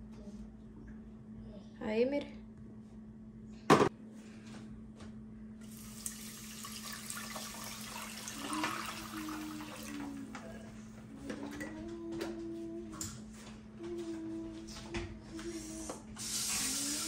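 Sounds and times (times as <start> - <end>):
water pouring into a frying pan: 5.7 - 10.0.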